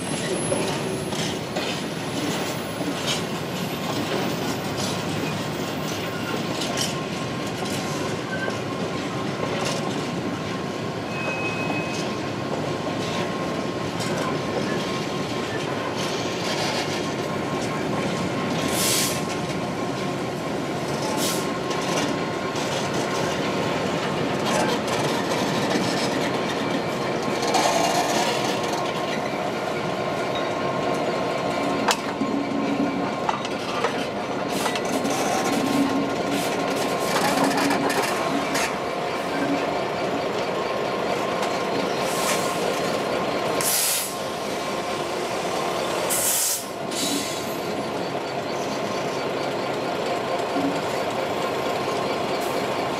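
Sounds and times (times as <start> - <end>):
diesel locomotive engine running: 12.3 - 52.9.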